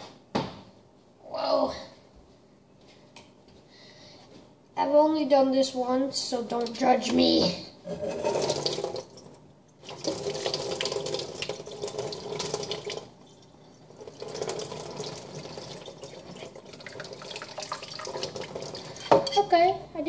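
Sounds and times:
water poured through strainer: 8.2s - 19.1s.

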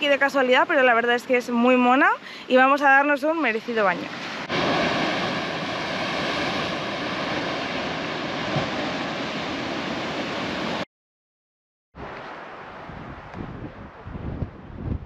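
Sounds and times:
surf breaking on rocks: 4.4s - 10.8s
wind noise on microphone: 12.0s - 15.0s.

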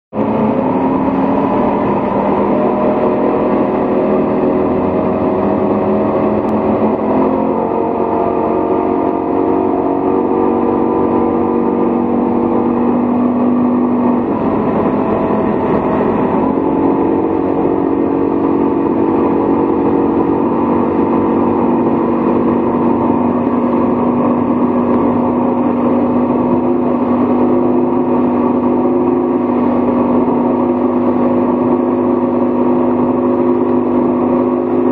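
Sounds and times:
motorboat engine droning: 0.1s - 34.9s
wind: 0.1s - 34.9s
rushing water: 0.2s - 34.9s.

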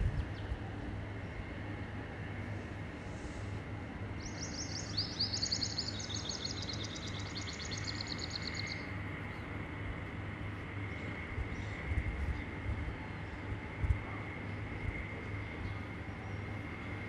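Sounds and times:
low background hum: 0.0s - 17.0s
small birds trilling: 4.1s - 9.4s.

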